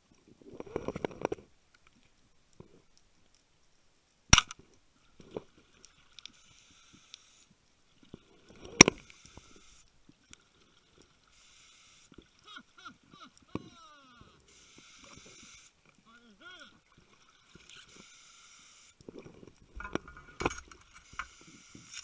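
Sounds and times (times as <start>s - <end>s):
scuba regulator hissing: 14.4s - 15.8s.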